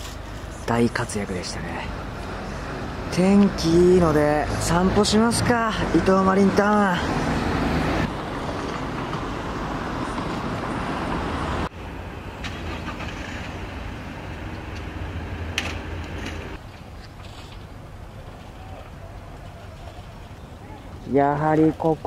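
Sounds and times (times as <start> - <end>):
outdoor ambience: 0.0 - 22.0
passing cars: 0.0 - 22.0.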